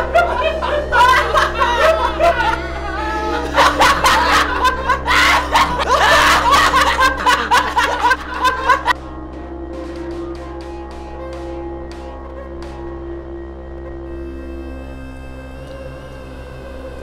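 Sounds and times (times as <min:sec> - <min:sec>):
men laughing: 0:00.0 - 0:09.0
low music drone: 0:00.0 - 0:17.0.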